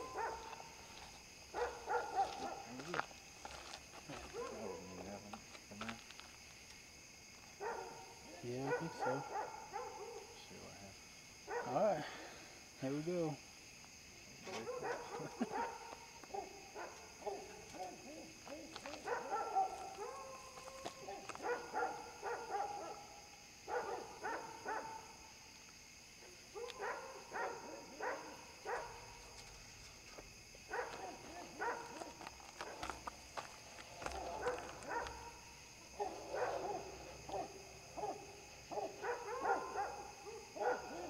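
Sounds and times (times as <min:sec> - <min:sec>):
dogs barking and yipping: 0:00.0 - 0:02.9, 0:04.2 - 0:04.8, 0:07.6 - 0:10.4, 0:14.5 - 0:25.1, 0:26.2 - 0:29.2, 0:30.6 - 0:41.0.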